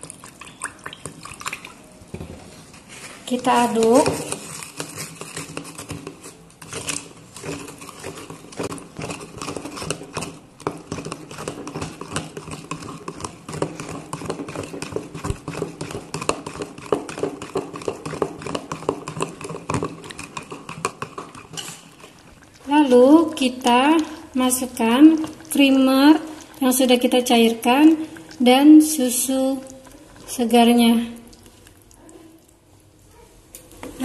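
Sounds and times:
spoon clicking and scraping jug: 3.7s - 22.5s.

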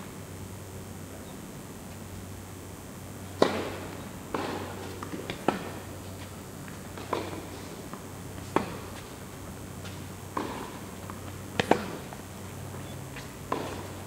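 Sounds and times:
tennis ball bouncing: 13.5s - 13.8s.

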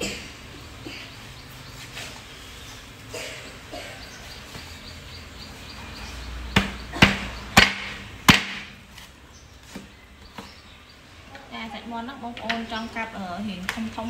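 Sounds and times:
cleaver chopping on wooden board: 6.6s - 8.7s.

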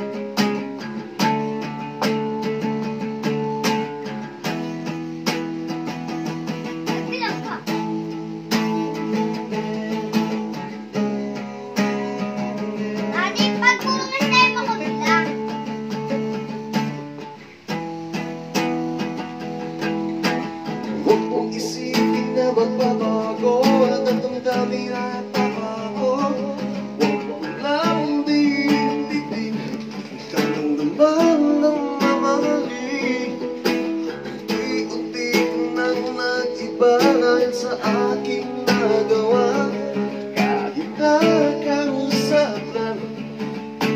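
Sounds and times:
acoustic guitar strumming: 0.0s - 43.9s
man singing: 5.9s - 16.7s, 20.3s - 43.9s.

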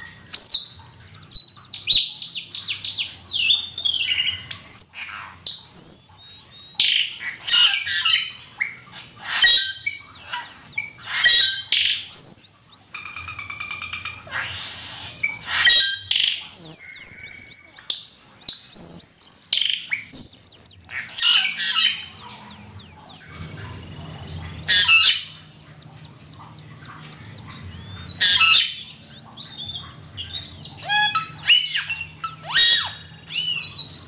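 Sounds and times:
bird chirps and whistles: 0.0s - 23.2s, 29.6s - 34.0s
faint low hum: 11.8s - 34.0s.

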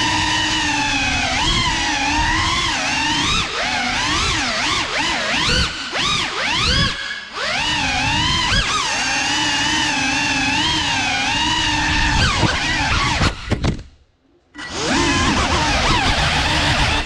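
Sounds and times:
drone motors whining: 0.0s - 13.8s, 14.5s - 17.0s.

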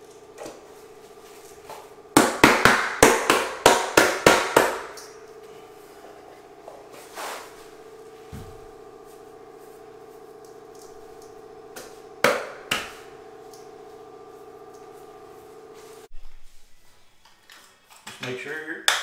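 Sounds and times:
steady low hum: 0.0s - 17.4s
sharp knocks: 2.2s - 4.9s.

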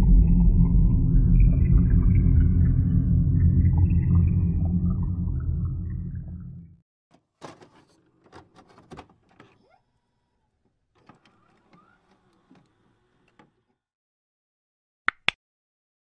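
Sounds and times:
deep ambient music: 0.0s - 6.8s.

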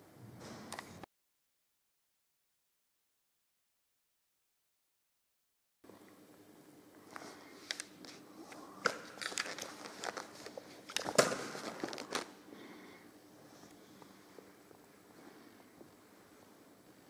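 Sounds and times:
faint steady hum: 5.9s - 17.0s
rustling and crackling: 7.1s - 12.4s.

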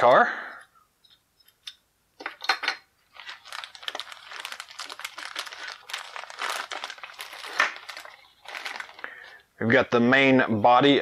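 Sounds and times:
plastic bag crinkling: 3.0s - 9.5s.

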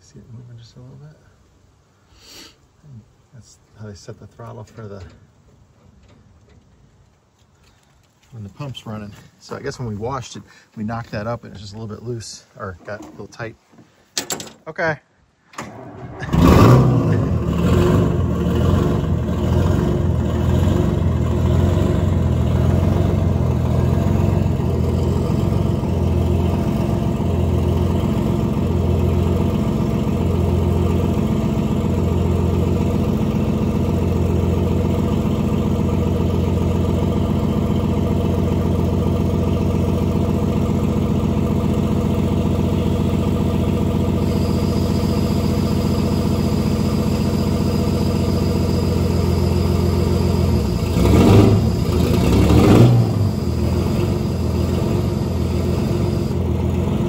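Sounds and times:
diesel engine running: 15.6s - 57.0s.

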